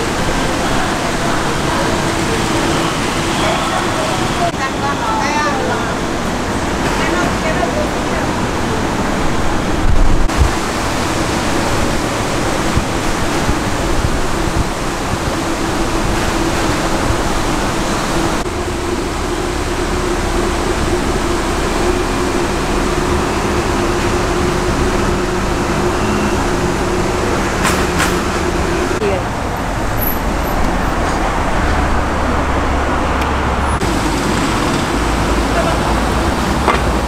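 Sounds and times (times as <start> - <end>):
rushing city street: 0.0 - 37.0.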